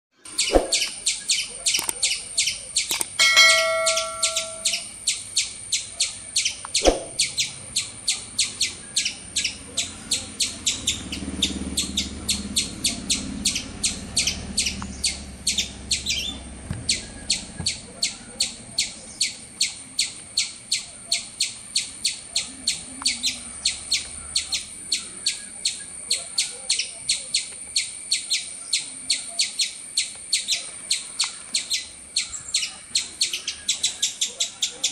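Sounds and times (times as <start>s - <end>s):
high-pitched chirps: 2.8s - 4.9s
short chime: 3.2s - 4.8s.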